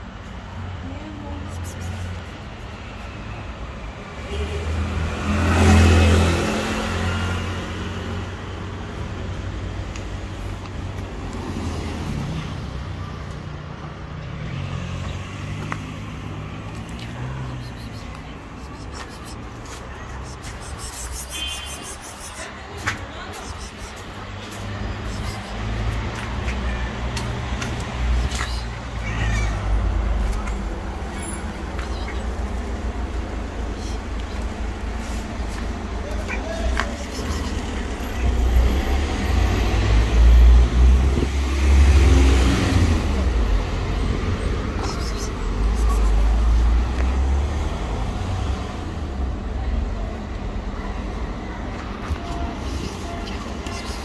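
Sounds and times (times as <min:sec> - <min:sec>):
vehicle engine passing: 0:04.2 - 0:10.4, 0:13.7 - 0:49.2
cat meowing: 0:28.2 - 0:32.5.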